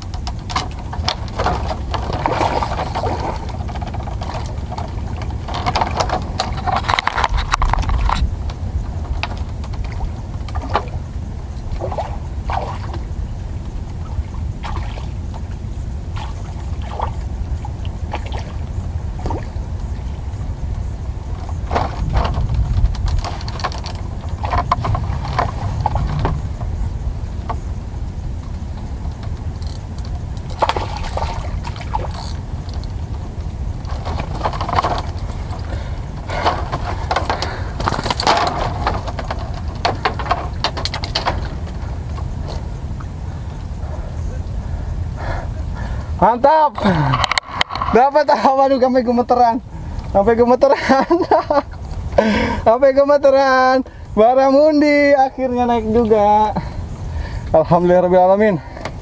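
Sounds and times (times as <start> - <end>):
fishing tackle clicks and knocks: 0.0 - 10.9, 20.8 - 26.8, 29.0 - 43.1, 46.8 - 48.0
wind rumble on microphone: 0.0 - 59.0
water splashing: 0.9 - 8.3, 9.2 - 27.7, 30.3 - 44.1.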